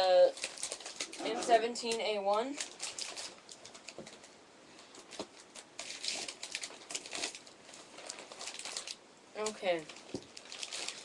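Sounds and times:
paper packaging crinkling: 0:00.0 - 0:11.0.

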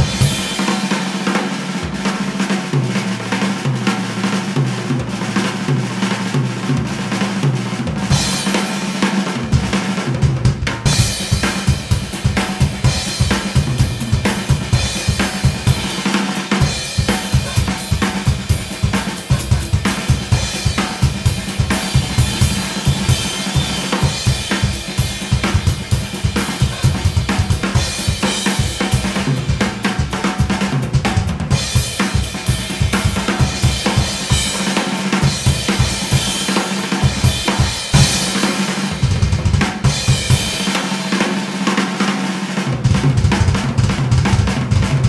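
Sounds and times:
bass drum strokes: 0:10.6 - 0:29.9, 0:37.2 - 0:40.5.

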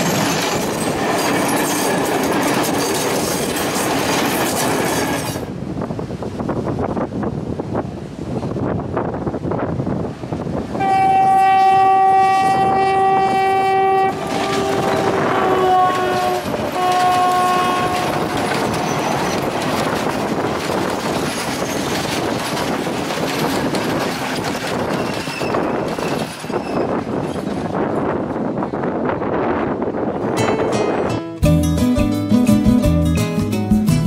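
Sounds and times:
train wheels clattering: 0:00.0 - 0:05.5, 0:11.6 - 0:28.2
locomotive horn blasts: 0:10.8 - 0:18.9.

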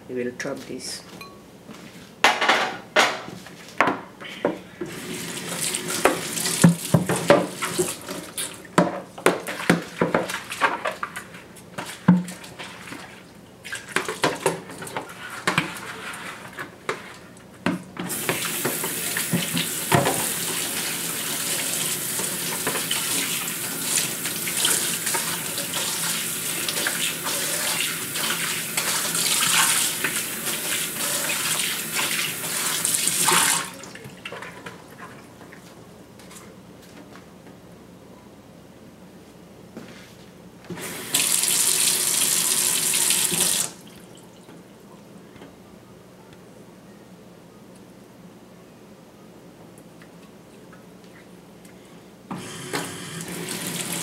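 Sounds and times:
dishes clattering in sink: 0:02.2 - 0:04.0
tap running into sink: 0:05.5 - 0:08.9, 0:18.1 - 0:20.4.

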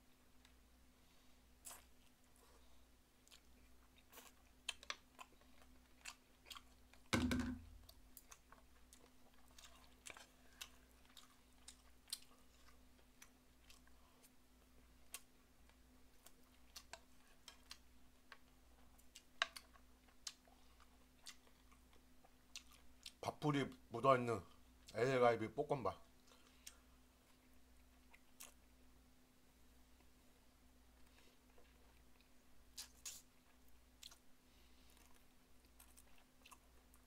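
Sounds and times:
faint steady hum: 0:00.0 - 0:37.0
chewing and lip-smacking: 0:01.6 - 0:07.1, 0:07.8 - 0:23.2, 0:26.2 - 0:28.8, 0:30.9 - 0:37.0.

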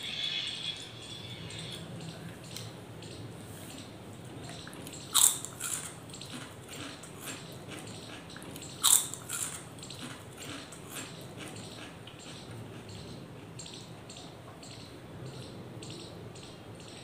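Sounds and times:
soft chewing crunches: 0:04.5 - 0:12.9
crunchy bites into snacks: 0:05.2 - 0:07.4, 0:08.6 - 0:11.1.

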